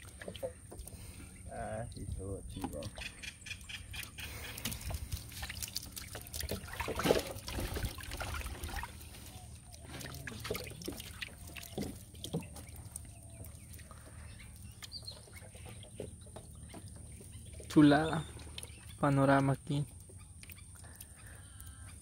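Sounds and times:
water trickling and dripping: 0:00.0 - 0:22.0
water splashing into canoe: 0:04.2 - 0:18.8.

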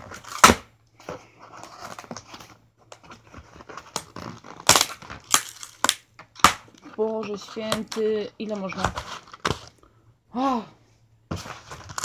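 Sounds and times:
sharp tape rips: 0:00.0 - 0:00.7, 0:03.9 - 0:06.8
crinkling of tape and cardboard: 0:00.0 - 0:10.0, 0:11.3 - 0:12.0.

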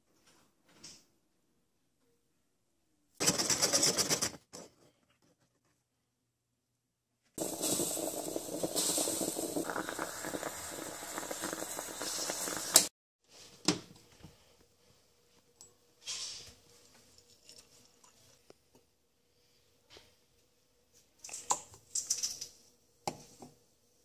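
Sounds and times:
moka pot gurgling and hissing: 0:07.4 - 0:12.9.

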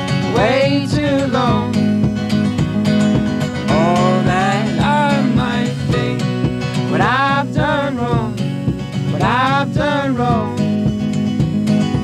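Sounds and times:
acoustic guitars strumming: 0:00.0 - 0:12.0
banjo picking: 0:00.0 - 0:12.0
man singing: 0:00.1 - 0:02.0, 0:03.6 - 0:10.9.

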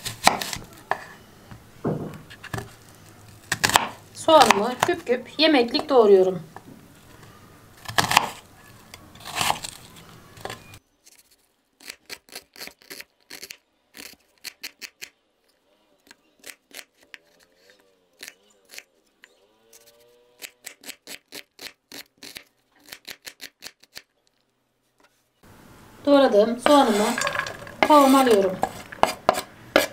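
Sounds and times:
knife chopping onion on board: 0:00.0 - 0:01.0, 0:03.5 - 0:04.9, 0:28.6 - 0:29.9.

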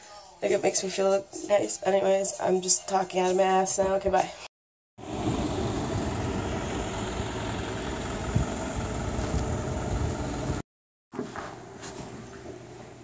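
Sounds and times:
road traffic rumble: 0:05.0 - 0:10.6
vehicle engine running: 0:05.0 - 0:10.6.

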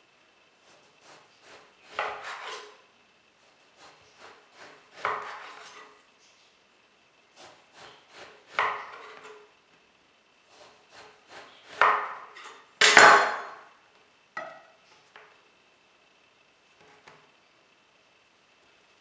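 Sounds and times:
knife cutting on countertop: 0:00.6 - 0:02.8, 0:03.8 - 0:06.0
knife sawing strokes: 0:00.6 - 0:02.8, 0:03.6 - 0:06.0, 0:07.3 - 0:09.4, 0:10.5 - 0:12.6.

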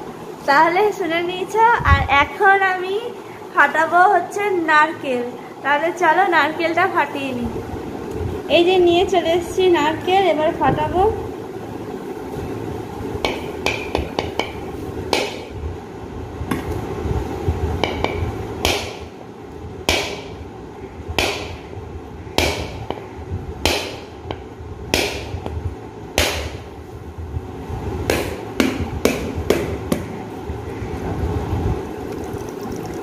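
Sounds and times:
knife striking coconut shell: 0:13.2 - 0:15.5, 0:17.8 - 0:19.0, 0:19.9 - 0:20.3, 0:21.2 - 0:21.6, 0:22.4 - 0:23.0, 0:23.6 - 0:24.1, 0:25.0 - 0:25.3, 0:26.2 - 0:26.6, 0:28.1 - 0:30.0.

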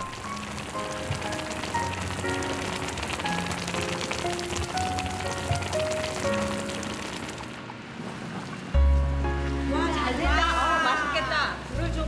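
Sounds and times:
stew bubbling in a pot: 0:00.0 - 0:08.8
slow background music: 0:00.0 - 0:12.0.

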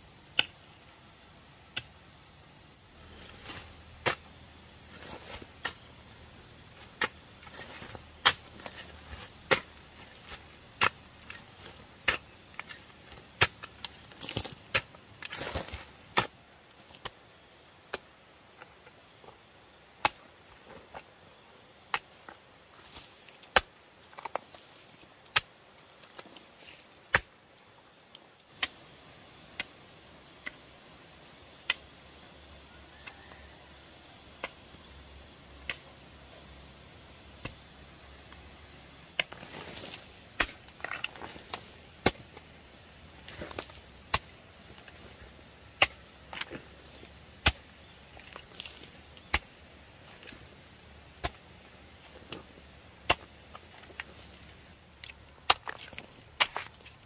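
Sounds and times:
soil crumbling: 0:03.0 - 0:17.2, 0:39.2 - 0:57.0
hoe chopping into soil: 0:03.2 - 0:04.3, 0:04.9 - 0:05.9, 0:06.8 - 0:16.3, 0:39.2 - 0:57.0.

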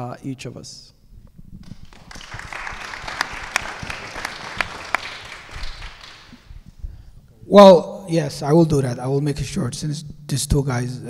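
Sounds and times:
audience applauding: 0:01.6 - 0:06.5.

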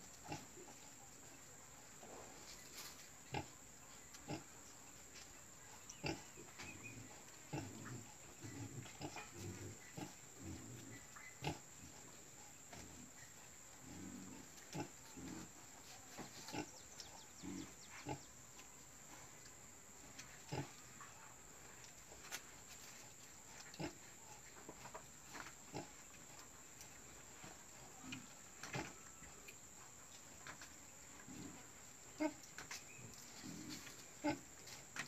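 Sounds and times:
pig grunting: 0:07.5 - 0:11.7.

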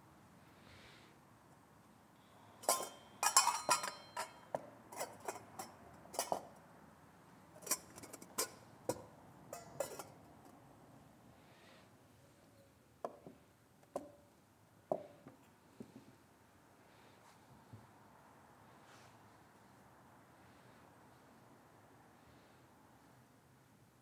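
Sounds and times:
altar vessels clinking: 0:02.6 - 0:06.5, 0:07.6 - 0:10.2.

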